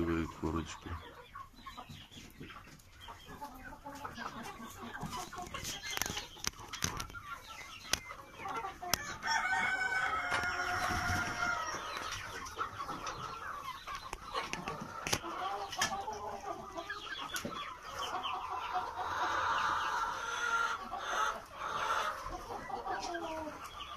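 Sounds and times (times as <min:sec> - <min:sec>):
chickens clucking: 0:00.0 - 0:23.9
rooster crowing: 0:09.1 - 0:11.8.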